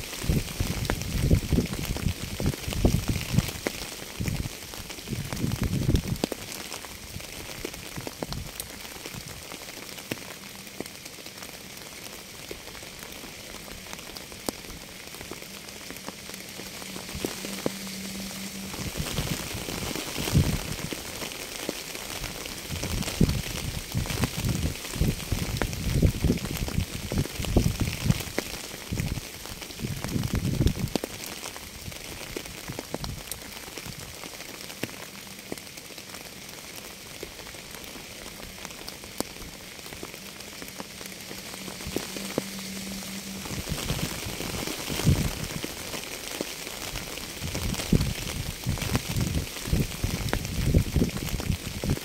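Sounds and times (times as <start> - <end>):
steady rain falling: 0.0 - 52.0
low rumbling surges: 11.6 - 33.3, 36.9 - 52.0.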